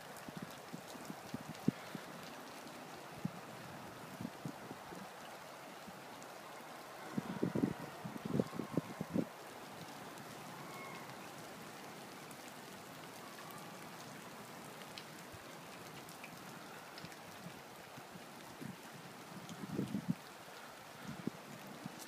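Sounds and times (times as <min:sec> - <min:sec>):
snow pattering on leaves: 0:00.0 - 0:22.0.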